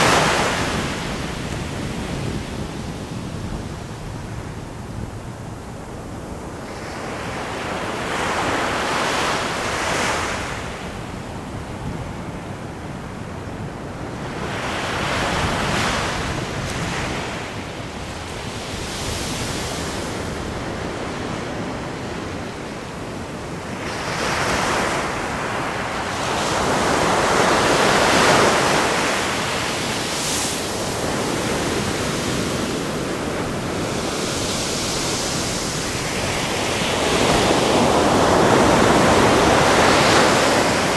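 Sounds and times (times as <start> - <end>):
ocean surf breaking: 0.0 - 3.1, 23.6 - 40.9.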